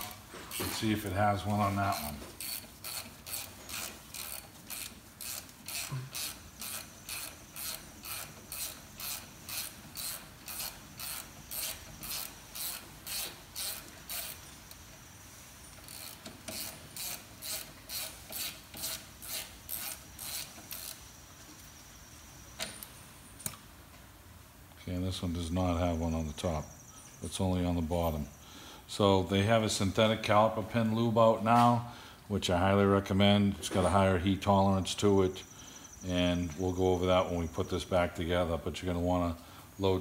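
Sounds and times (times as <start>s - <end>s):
hand ratchet clicking: 1.9s - 14.8s, 15.7s - 21.0s.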